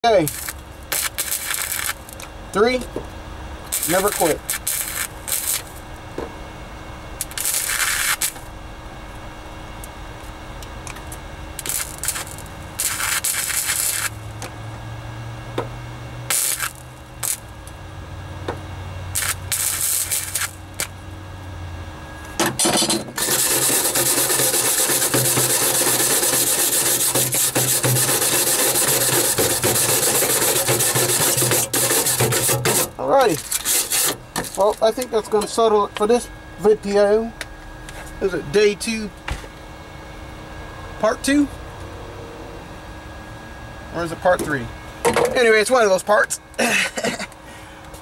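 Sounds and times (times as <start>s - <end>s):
welder arc bursts: 0.0s - 2.2s, 3.7s - 5.8s, 7.2s - 8.5s, 11.6s - 14.2s, 16.3s - 17.5s, 19.1s - 20.9s, 22.6s - 35.2s
scraping of welds by hand: 0.2s - 2.3s, 3.7s - 5.8s, 7.2s - 8.4s, 11.0s - 14.2s, 16.3s - 17.4s, 19.1s - 20.9s, 22.4s - 35.6s.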